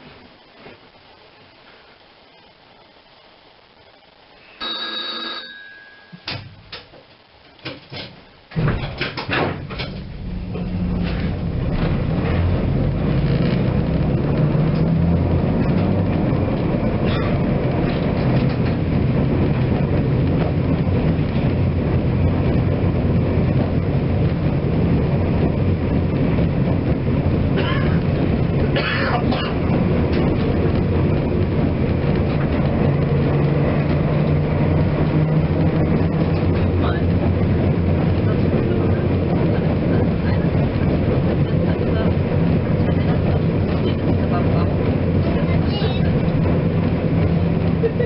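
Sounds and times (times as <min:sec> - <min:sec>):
tram ringing signal: 0:04.6 - 0:06.4
clicks and knocks: 0:06.2 - 0:10.1
tram motors and wheels rumbling: 0:06.2 - 0:48.0.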